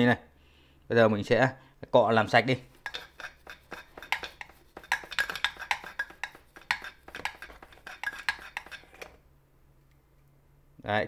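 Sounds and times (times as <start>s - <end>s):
metal wool scratching: 2.6s - 9.2s.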